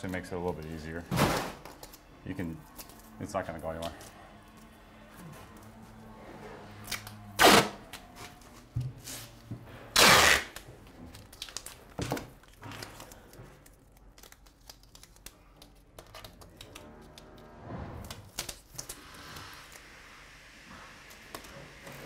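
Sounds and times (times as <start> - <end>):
tape crinkling: 1.6 - 6.1, 10.0 - 17.4, 18.0 - 19.9
tape ripped off roll: 7.4 - 7.8, 10.0 - 10.6.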